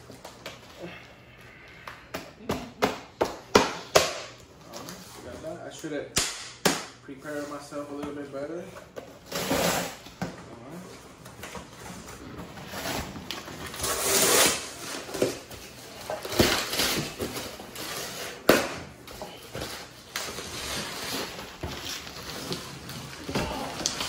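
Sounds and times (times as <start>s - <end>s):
bubble wrap crinkling: 19.3s - 24.0s.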